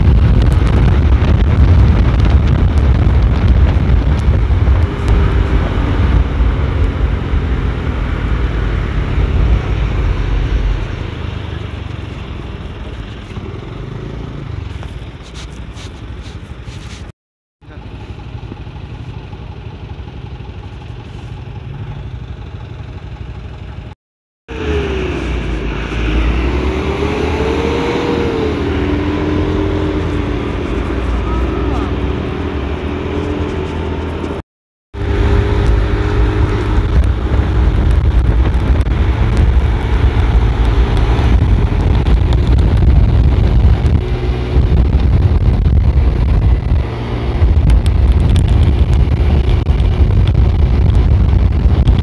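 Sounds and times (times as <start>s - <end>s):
truck engine running: 0.0s - 24.0s, 35.0s - 52.0s
road noise: 0.0s - 52.0s
wind: 0.0s - 52.0s.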